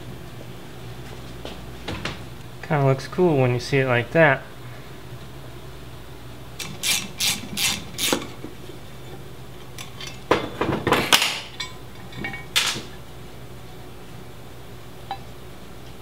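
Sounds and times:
hand tool rasping strokes: 0:06.6 - 0:08.2.

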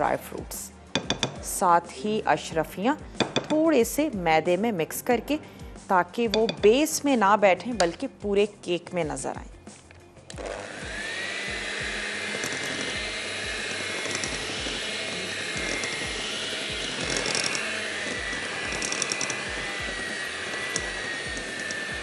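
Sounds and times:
electric mixer whining: 0:10.3 - 0:22.0.

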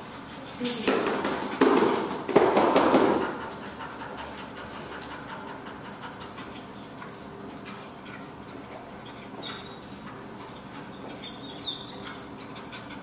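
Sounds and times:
dog panting: 0:02.9 - 0:13.0.

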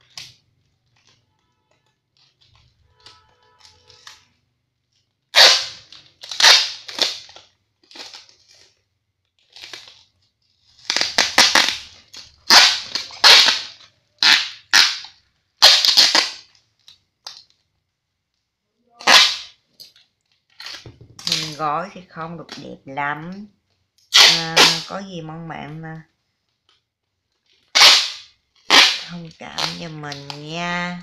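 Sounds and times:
packing tape ripping: 0:05.3 - 0:17.5, 0:19.0 - 0:21.6, 0:24.0 - 0:24.9, 0:27.4 - 0:31.0.

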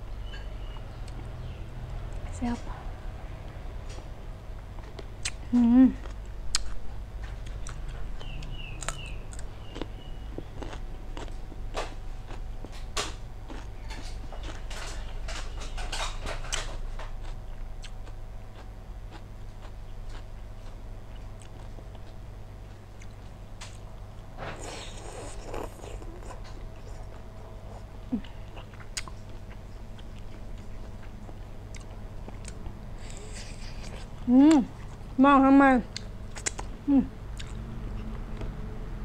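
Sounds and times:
person chewing food: 0:04.7 - 0:35.1, 0:35.9 - 0:36.8, 0:37.4 - 0:38.6
mouth clicks and smacks: 0:36.0 - 0:36.7.

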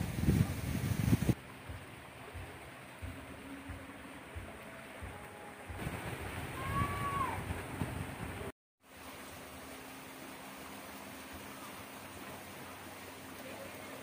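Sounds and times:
wind rumbling on microphone: 0:00.0 - 0:01.8, 0:04.4 - 0:08.5
faint outdoor background: 0:00.0 - 0:14.0.

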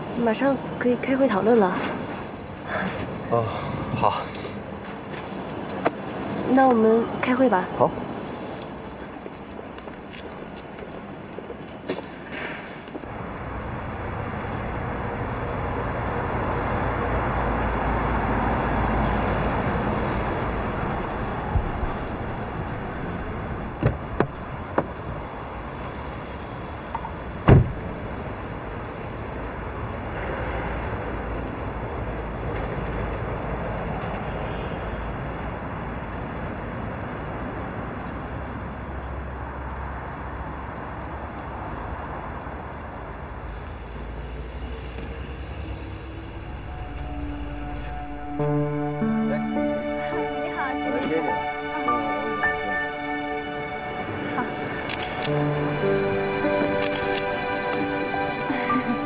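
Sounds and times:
road traffic: 0:00.0 - 0:59.0
car door shutting: 0:23.8 - 0:25.0, 0:27.4 - 0:28.0.

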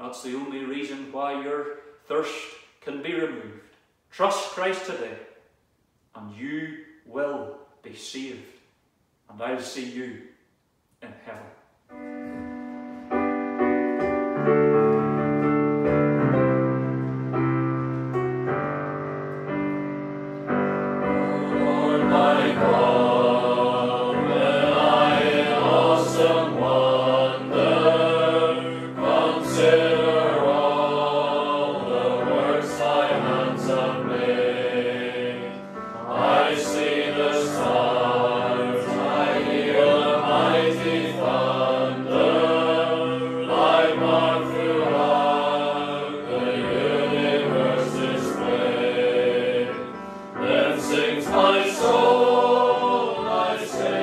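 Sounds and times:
electronic keyboard chords: 0:11.9 - 0:54.0
choir singing a hymn: 0:18.7 - 0:54.0.

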